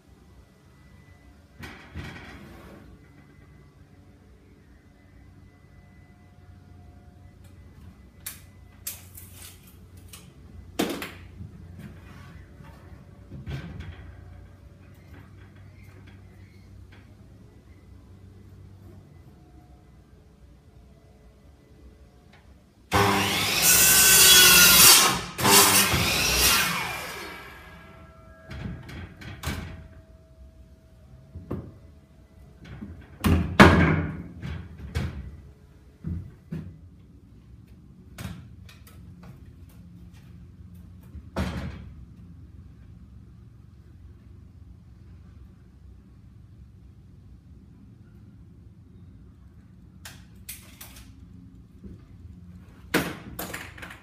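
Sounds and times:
mitre saw cutting timber: 22.9 - 27.8.

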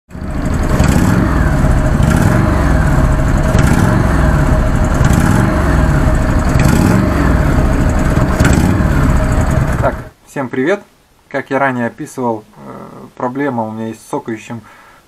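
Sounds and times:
motorcycle engine running: 0.1 - 10.1.

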